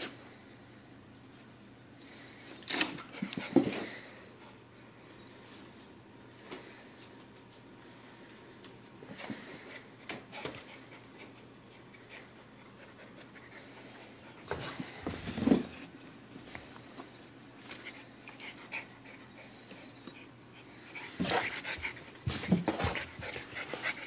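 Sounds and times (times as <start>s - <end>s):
puppy panting: 17.9s - 24.0s.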